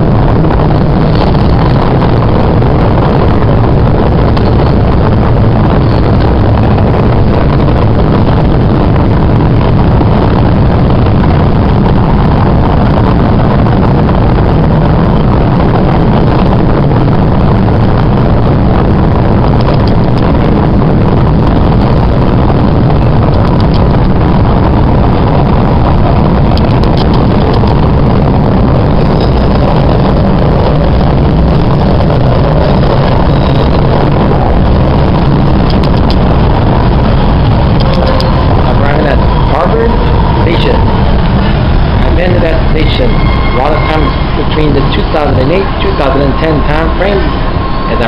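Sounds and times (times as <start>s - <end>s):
subway train wheels rumbling: 0.0s - 48.0s.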